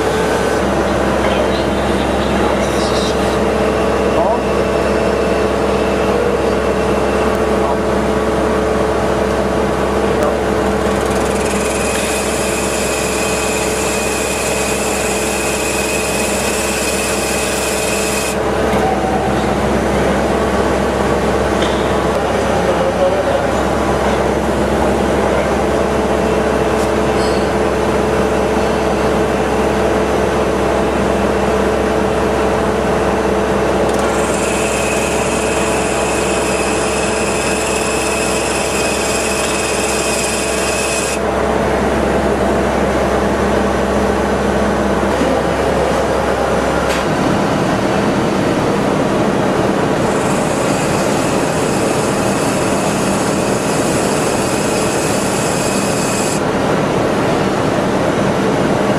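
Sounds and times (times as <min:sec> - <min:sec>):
machine cutting metal: 0:10.3 - 0:18.5, 0:33.7 - 0:41.3, 0:49.5 - 0:56.4
higher-pitched machining band: 0:10.8 - 0:18.4, 0:33.9 - 0:41.2, 0:50.0 - 0:56.4.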